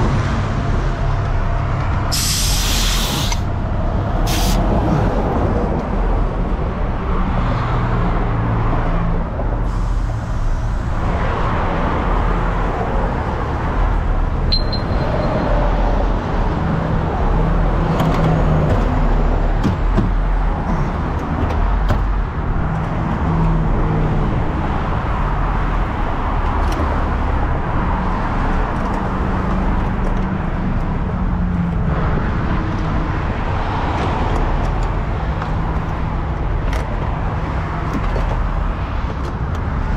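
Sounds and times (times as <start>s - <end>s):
traffic passing: 0.0s - 39.9s.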